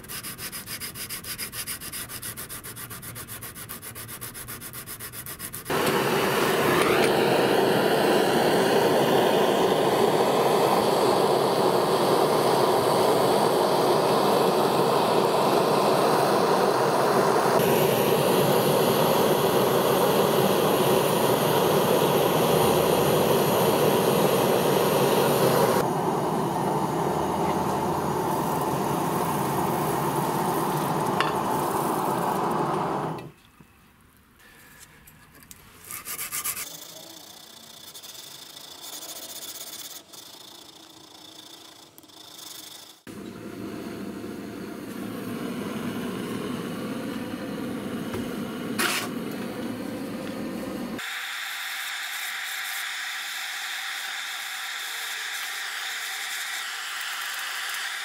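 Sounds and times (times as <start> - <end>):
hand-sanding strokes on blade: 0.0 - 5.7, 35.8 - 43.1
gas torch hissing: 5.6 - 33.3, 37.4 - 58.0.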